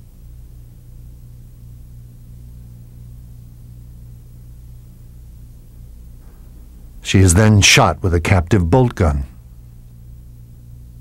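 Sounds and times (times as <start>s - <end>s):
low hum with faint hiss: 0.0s - 11.0s.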